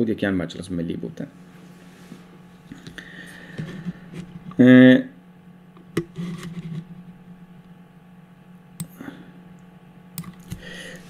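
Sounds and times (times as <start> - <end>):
faint breath or mouth sound: 10.5 - 11.0.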